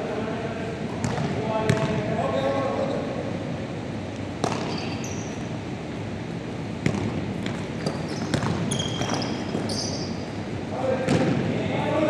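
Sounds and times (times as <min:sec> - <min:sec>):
large hall background noise: 0:00.0 - 0:12.0
sneakers squeaking: 0:00.9 - 0:03.3, 0:04.4 - 0:05.7, 0:06.8 - 0:10.4
basketball bouncing on wooden floor: 0:08.2 - 0:09.7.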